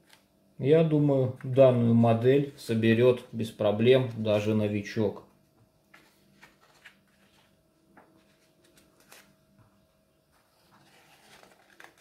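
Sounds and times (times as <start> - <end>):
faint steady hum: 0.0 - 12.0
paper page rustling: 5.9 - 9.4, 10.3 - 12.0.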